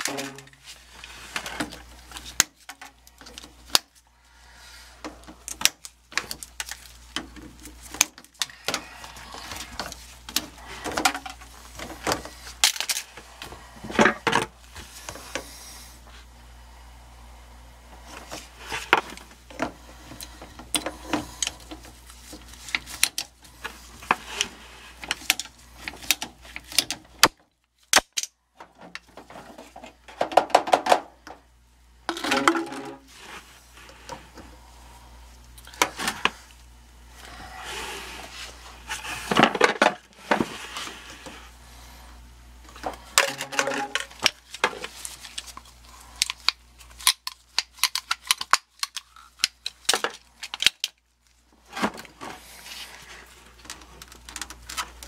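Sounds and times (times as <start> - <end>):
steady low hum: 0.0 - 55.0
plastic pipe clicking and rattling: 9.5 - 13.0, 32.1 - 33.1, 42.7 - 45.6, 53.6 - 55.0.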